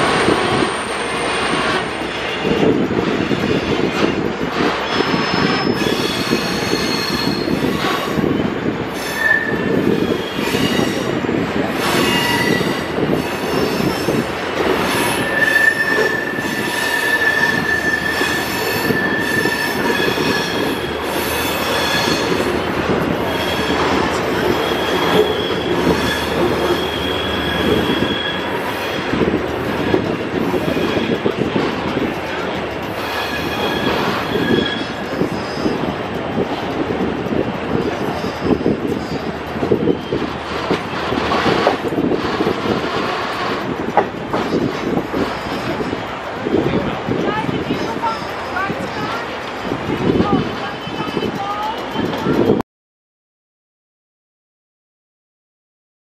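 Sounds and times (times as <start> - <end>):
train wheels rumbling on rails: 0.0 - 52.6
high-pitched wheel squeals: 4.8 - 8.4, 9.0 - 11.2, 11.8 - 14.2, 14.8 - 29.2, 33.0 - 35.9, 37.9 - 40.3.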